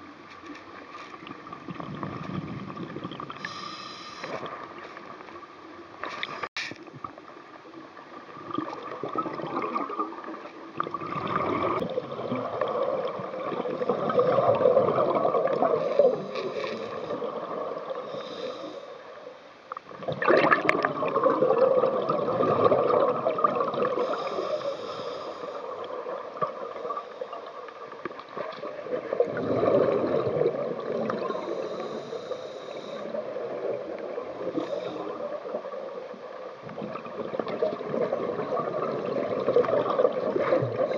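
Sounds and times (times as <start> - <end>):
exhaled bubbles gurgling: 0.8 - 6.3, 6.9 - 40.9
regulator inhalation hiss: 3.4 - 4.5, 18.0 - 19.2, 24.0 - 25.8, 31.2 - 33.2, 34.6 - 35.2.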